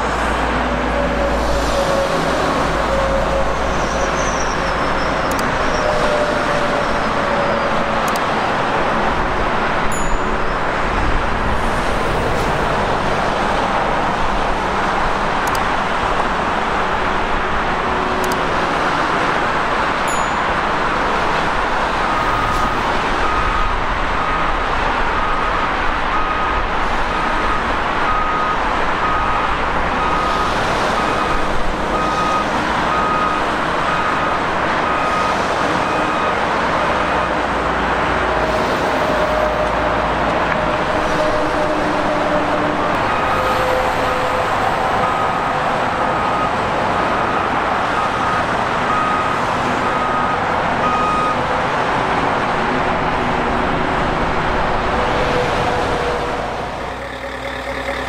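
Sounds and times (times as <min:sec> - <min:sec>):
highway traffic noise: 0:00.0 - 0:58.0
reversing alarm beeps: 0:22.2 - 0:25.5, 0:26.1 - 0:27.4, 0:28.1 - 0:36.4, 0:43.1 - 0:46.6, 0:47.2 - 0:51.5.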